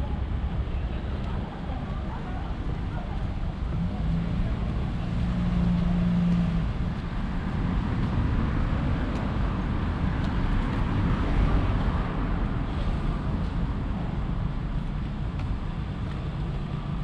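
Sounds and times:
engine hum: 0.0s - 17.0s
passing vehicles rumble: 0.0s - 17.0s.

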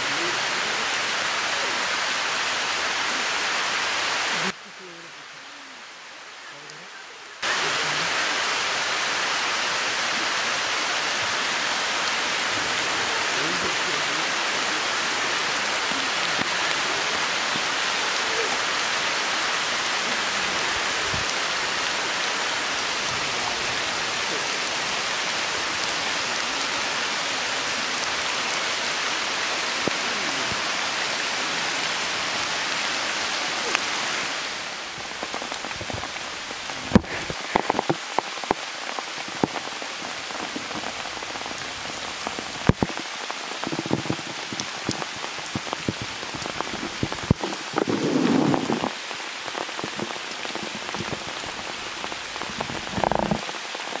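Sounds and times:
steady rain falling: 0.0s - 54.0s.

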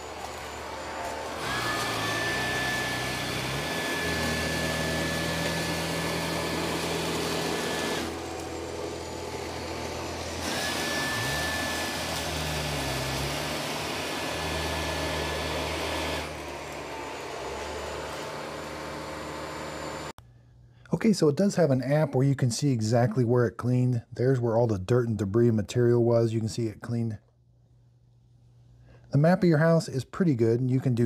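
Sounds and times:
robot vacuum motor whine: 0.0s - 20.1s.

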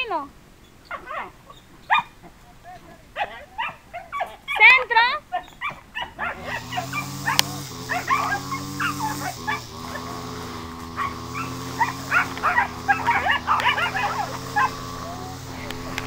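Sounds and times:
dogs yipping and barking: 0.6s - 16.0s
dog growling: 5.3s - 16.0s.

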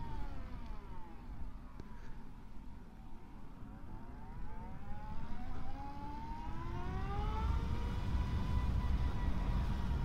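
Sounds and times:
wind rumble on microphone: 4.3s - 10.0s
motorcycle speeding up: 5.6s - 10.0s.

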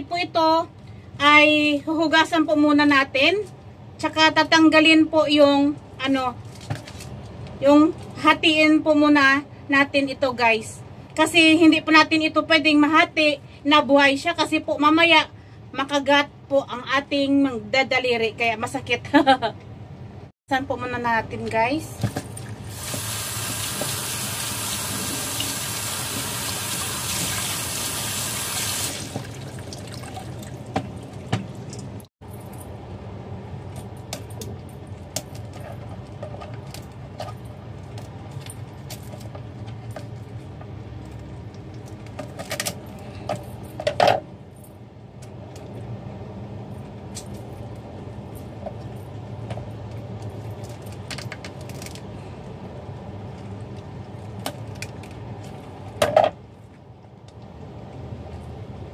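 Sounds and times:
tap water running: 22.4s - 32.0s.

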